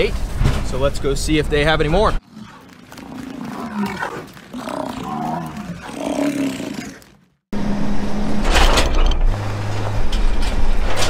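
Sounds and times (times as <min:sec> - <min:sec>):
bison bellowing: 0:02.2 - 0:07.2
vehicle rumbling on gravel road: 0:07.5 - 0:11.0.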